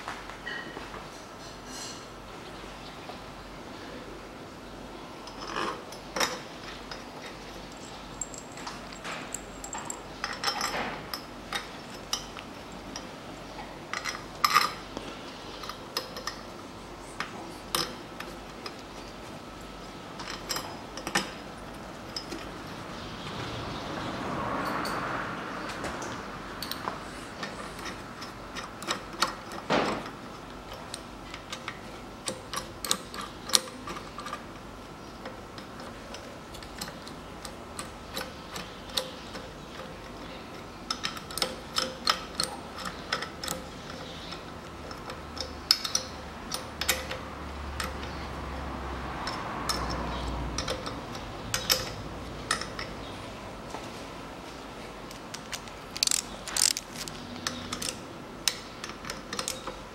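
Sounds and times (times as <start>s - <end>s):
socket ratchet clicking: 55.1s - 59.8s.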